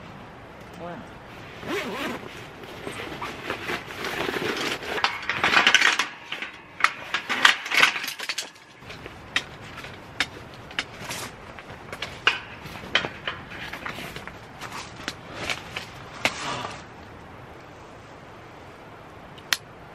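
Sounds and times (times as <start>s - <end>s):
nylon bag rustling: 1.3s - 9.2s
metal poles clattering: 3.5s - 16.5s
pole frame clicking: 4.2s - 14.4s.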